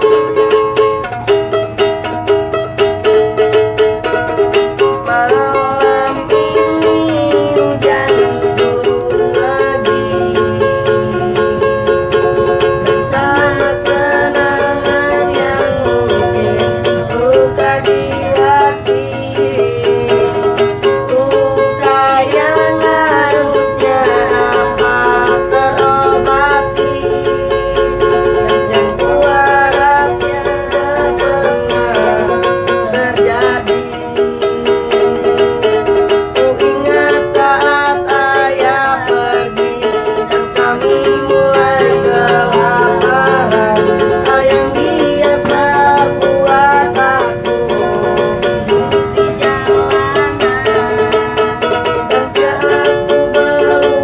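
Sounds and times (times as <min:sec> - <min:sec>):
ukulele strumming: 0:00.0 - 0:54.0
person singing pop song: 0:04.3 - 0:11.9, 0:12.6 - 0:48.5, 0:49.3 - 0:54.0.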